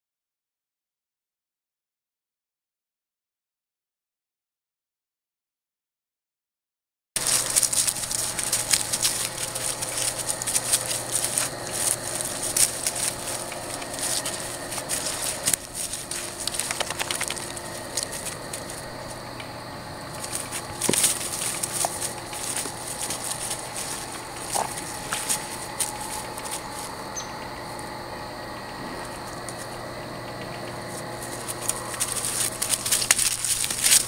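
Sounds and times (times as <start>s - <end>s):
dry leaves crackling under paws: 7.2s - 27.9s, 28.9s - 29.8s, 30.6s - 34.0s.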